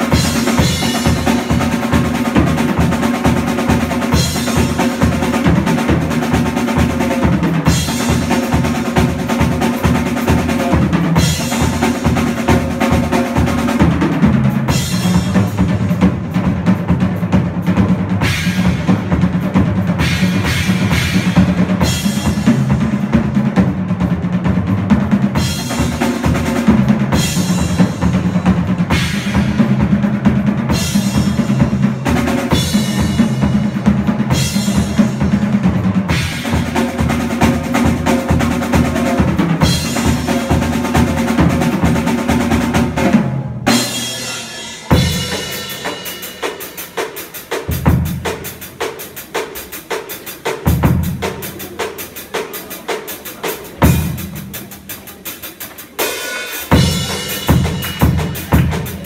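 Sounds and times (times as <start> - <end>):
drum kit playing: 0.0 - 59.0
cymbal crashes: 43.7 - 46.8.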